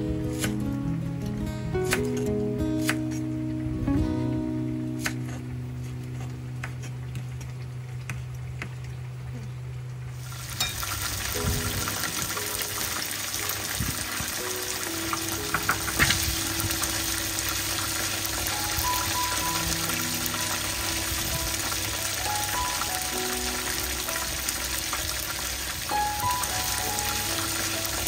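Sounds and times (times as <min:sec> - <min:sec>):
food sizzling in a pan: 0:10.1 - 0:28.0.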